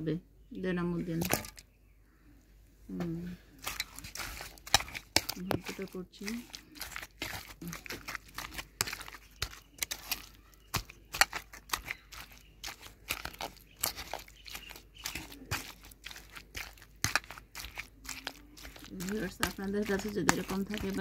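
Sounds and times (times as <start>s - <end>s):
wet squelches of mashing food: 1.1s - 1.6s, 3.3s - 21.0s.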